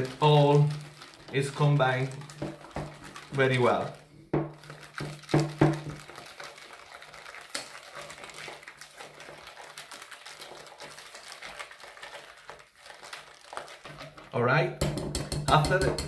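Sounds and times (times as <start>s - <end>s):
whisk clicking in steel bowl: 0.0s - 12.4s, 13.8s - 16.0s
knocks on bowl: 14.8s - 16.0s.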